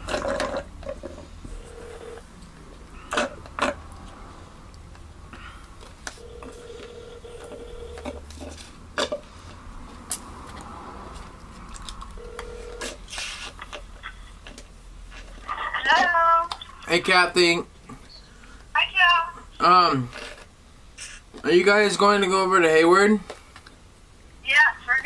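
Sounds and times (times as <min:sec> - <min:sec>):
telephone ringback tone: 0:01.5 - 0:02.2, 0:06.2 - 0:08.2, 0:12.2 - 0:13.0.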